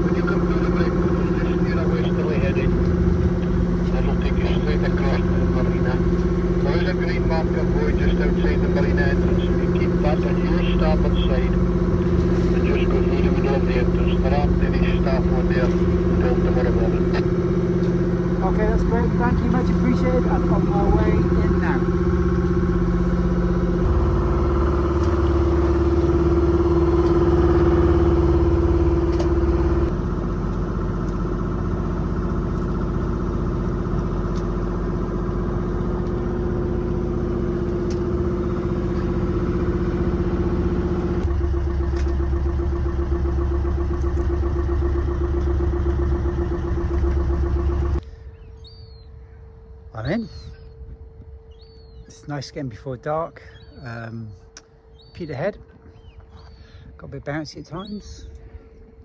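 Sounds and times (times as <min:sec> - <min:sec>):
boat engine droning: 0:00.0 - 0:59.0
bird chirp: 0:48.1 - 0:58.8.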